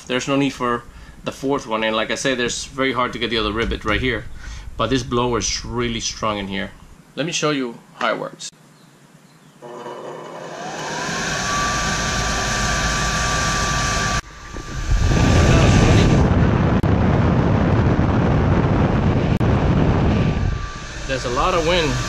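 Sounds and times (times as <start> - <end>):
air rushing through duct: 0.6 - 7.0, 10.9 - 22.0
blower fan whine: 9.6 - 22.0.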